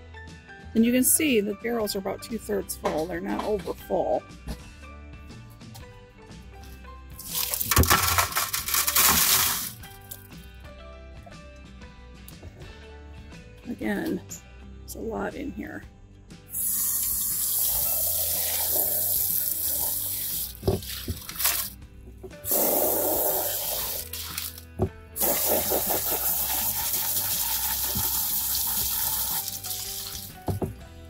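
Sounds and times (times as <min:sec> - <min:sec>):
hose water spraying and splashing: 0:08.7 - 0:09.8, 0:16.5 - 0:21.7, 0:22.4 - 0:30.5.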